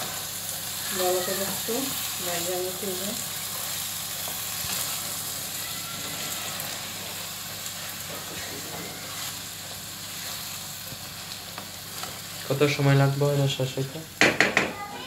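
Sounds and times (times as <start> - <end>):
rice sizzling in a pan: 0.0 - 15.0
wooden spatula stirring: 3.4 - 12.5.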